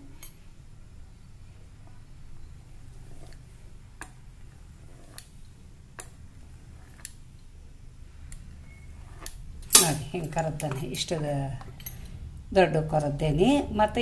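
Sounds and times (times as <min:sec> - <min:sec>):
low steady hum: 0:00.0 - 0:14.0
pastry cutter wheel rolling on dough: 0:01.6 - 0:11.7.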